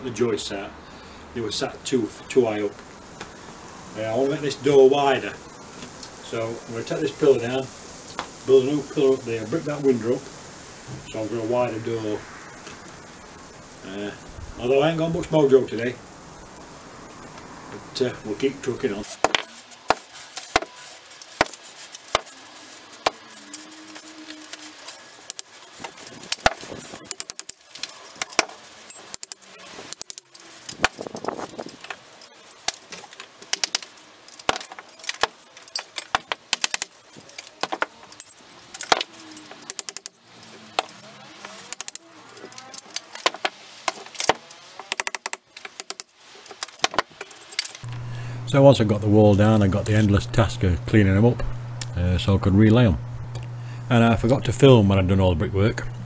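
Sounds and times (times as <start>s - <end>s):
hand tools striking brick: 19.1s - 22.3s, 25.3s - 31.3s, 32.6s - 37.9s, 43.2s - 47.1s
loose bricks knocking together: 19.1s - 22.4s, 25.2s - 47.8s.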